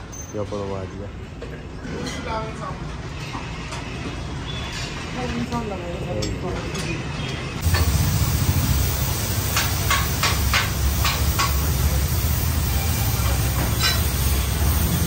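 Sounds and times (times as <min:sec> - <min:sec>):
cutting torch hissing: 0:07.6 - 0:15.0.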